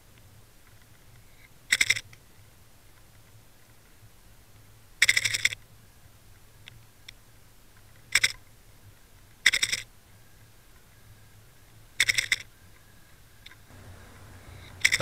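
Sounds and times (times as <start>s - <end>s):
faint low hum: 0.0s - 15.0s
rapid rattling clicks underwater: 1.7s - 2.0s, 5.0s - 5.6s, 8.1s - 8.4s, 12.0s - 12.5s.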